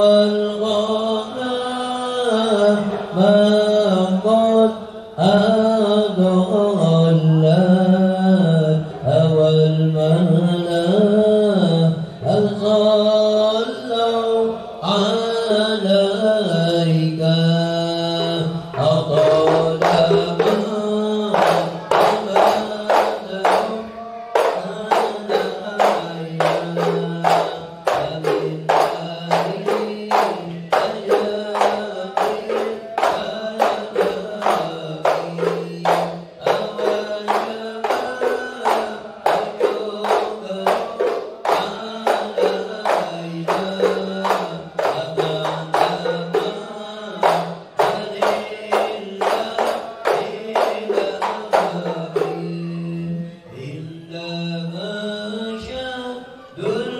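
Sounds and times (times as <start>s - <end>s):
men chanting in unison: 0.0s - 56.9s
frame drums beaten: 16.1s - 52.8s.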